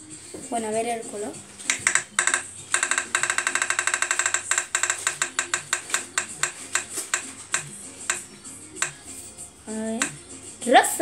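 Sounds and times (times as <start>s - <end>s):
roulette wheel ticking on phone: 1.7s - 9.1s.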